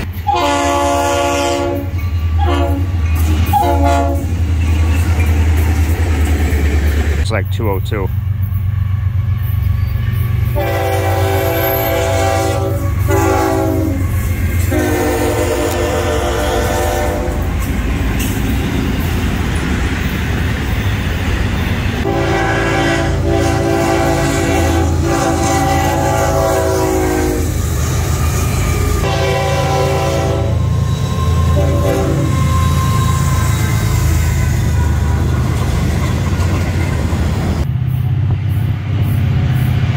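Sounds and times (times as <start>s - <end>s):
train air horn blasts: 0.0s - 4.4s, 10.5s - 17.5s, 22.0s - 35.2s
locomotive engines rumbling: 0.0s - 39.9s
train rushing by: 0.0s - 39.9s.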